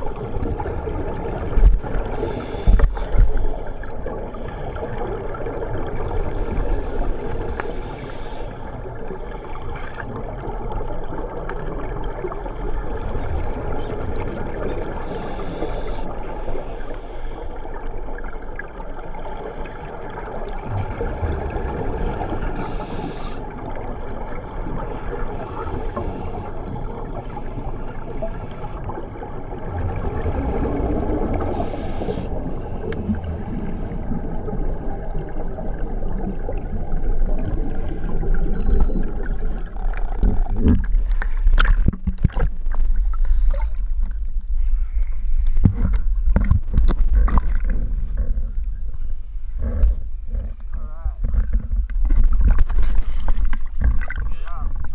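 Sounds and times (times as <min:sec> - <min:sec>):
muffled underwater rumble: 0:00.0 - 0:54.9
hiss of exhaled bubbles: 0:19.2 - 0:23.8, 0:29.9 - 0:38.6.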